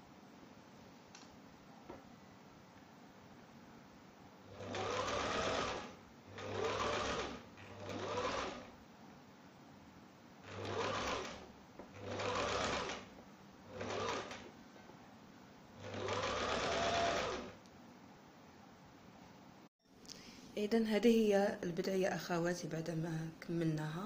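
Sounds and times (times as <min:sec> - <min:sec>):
sewing machine stitching: 0:04.4 - 0:08.8, 0:10.4 - 0:14.6, 0:15.8 - 0:17.6.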